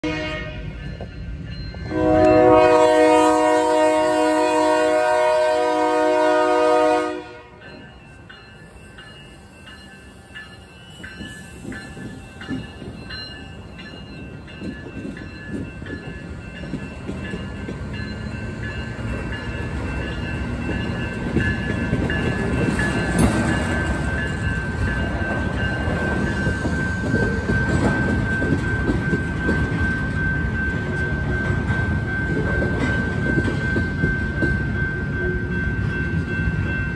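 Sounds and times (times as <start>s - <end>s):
locomotive horn: 0.0s - 0.8s, 1.9s - 7.6s
train rumbling past: 0.0s - 36.9s.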